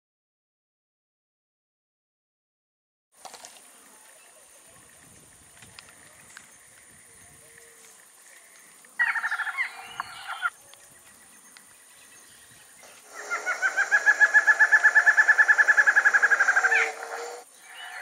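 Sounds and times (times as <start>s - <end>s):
bird singing nasal notes: 9.4s - 18.0s.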